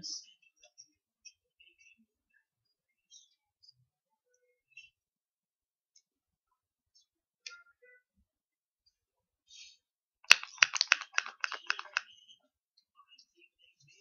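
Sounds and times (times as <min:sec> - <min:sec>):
spray bottle spritzing: 0:10.3 - 0:12.0.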